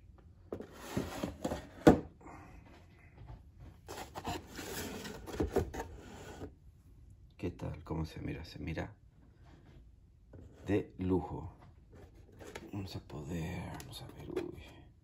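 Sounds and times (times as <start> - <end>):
cardboard rustling and scraping: 0.5 - 2.0, 3.8 - 6.6, 11.9 - 12.9.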